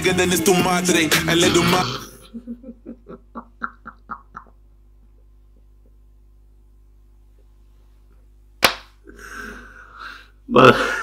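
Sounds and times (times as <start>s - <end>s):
man laughing: 1.6s - 5.9s, 10.5s - 11.0s.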